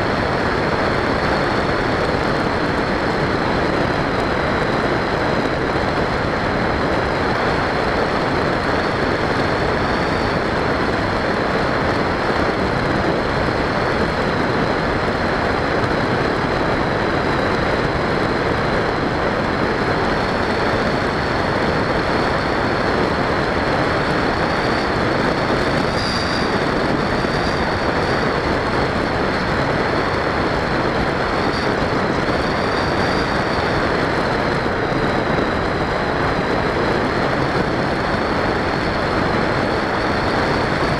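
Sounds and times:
rush of air noise: 0:00.0 - 0:40.9.

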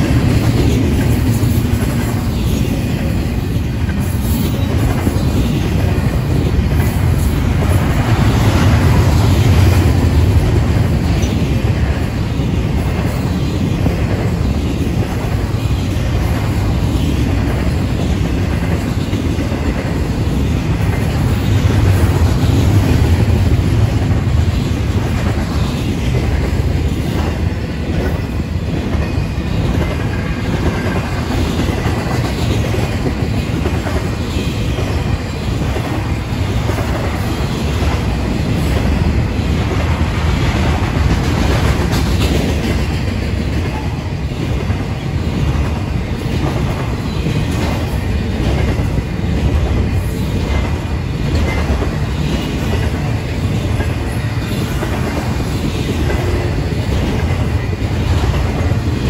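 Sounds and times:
freight train rumble: 0:00.0 - 0:59.0.

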